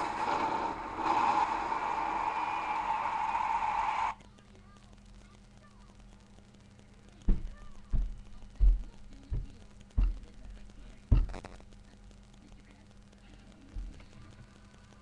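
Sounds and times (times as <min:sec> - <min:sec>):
faint steady hum: 0:00.0 - 0:15.0
feet stomping on floor: 0:11.1 - 0:11.5.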